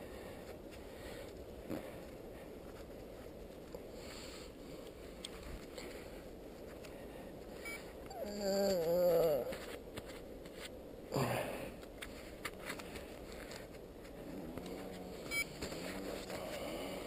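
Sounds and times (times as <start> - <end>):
low outdoor background: 0.0 - 17.0.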